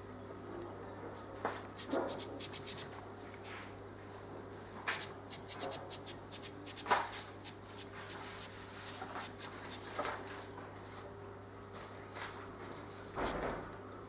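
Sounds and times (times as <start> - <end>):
steady low hum: 0.0 - 10.4
scraper scratching on aquarium glass: 1.6 - 3.0, 4.9 - 10.1.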